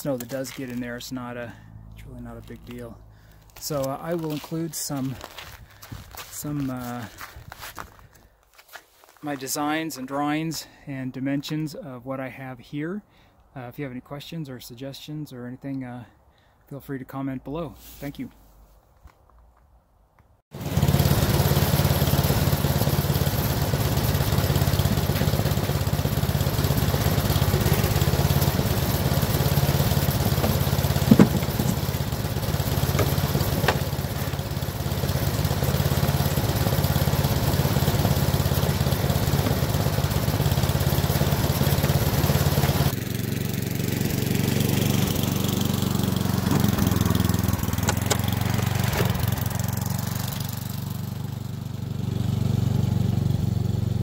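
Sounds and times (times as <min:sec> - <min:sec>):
snowblower engine running: 0:20.5 - 0:54.0.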